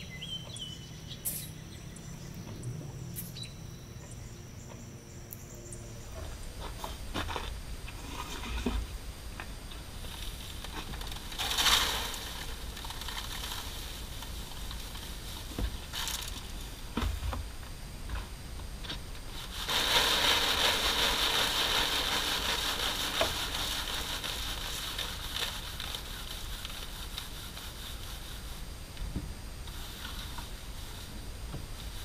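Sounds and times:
grain rattling through a screen: 10.0s - 16.7s, 19.3s - 28.6s.

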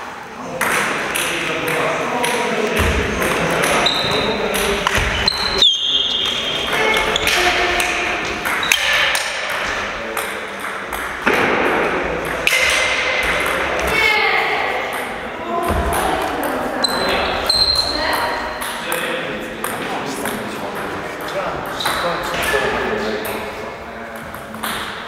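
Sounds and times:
shoes squeaking on wooden floor: 3.7s - 7.7s, 16.8s - 18.6s.

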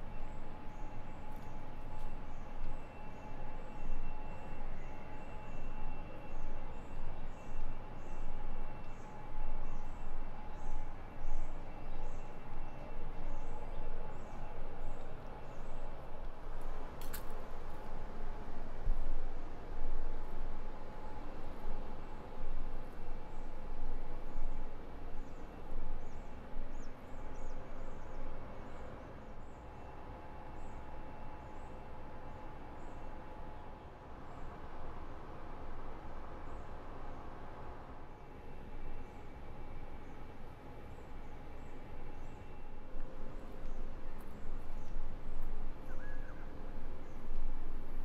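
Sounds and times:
faint steady tones: 0.0s - 48.0s.

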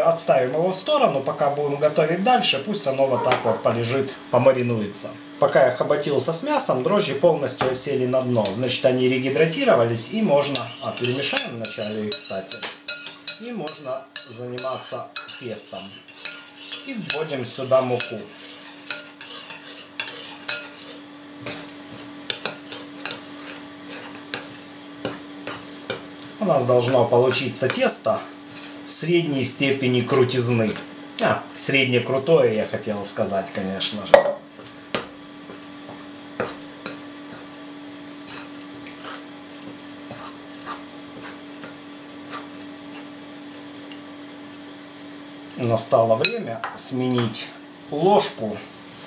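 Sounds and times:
spoon scraping in mixing bowl: 10.0s - 26.0s, 28.5s - 28.8s, 38.2s - 41.5s
spoon tapping bowl: 34.1s - 35.1s.

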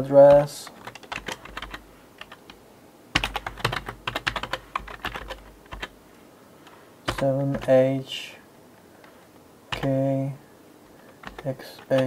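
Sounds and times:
typing on computer keyboard: 0.3s - 2.5s, 3.2s - 5.9s, 7.1s - 7.7s, 9.7s - 10.0s, 11.1s - 12.0s.

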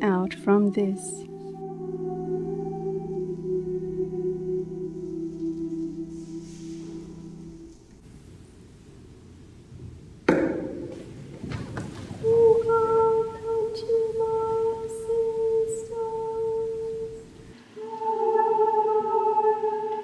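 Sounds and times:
high voice singing held note: 0.0s - 7.9s, 12.2s - 20.0s.

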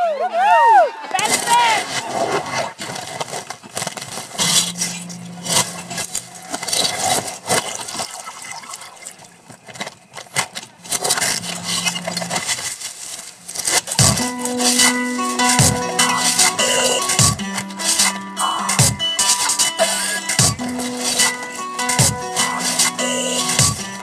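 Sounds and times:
scattered claps: 15.6s - 21.3s, 22.0s - 24.0s.

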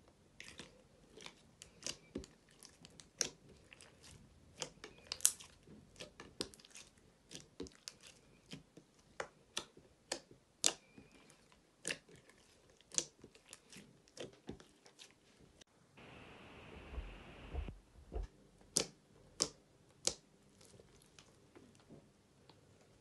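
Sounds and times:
sticky slime pops and clicks: 18.7s - 20.2s.

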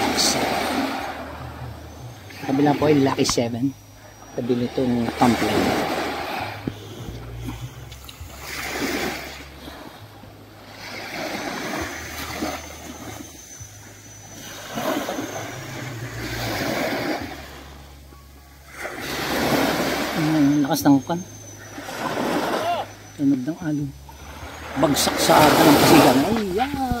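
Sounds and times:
low rumble: 0.0s - 10.8s
sea waves breaking on shore: 0.0s - 27.0s.

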